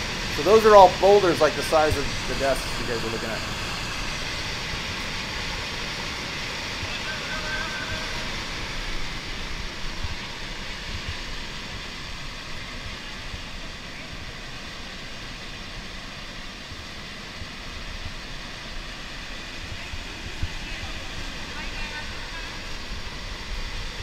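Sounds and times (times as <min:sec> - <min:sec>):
heavy roar of rushing water: 0:00.0 - 0:24.0.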